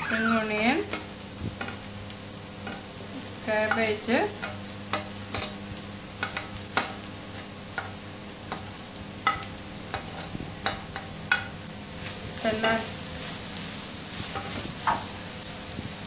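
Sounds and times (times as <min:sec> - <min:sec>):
vegetables sizzling in oil: 0:00.0 - 0:16.0
clinks against plate and pan: 0:09.2 - 0:11.5.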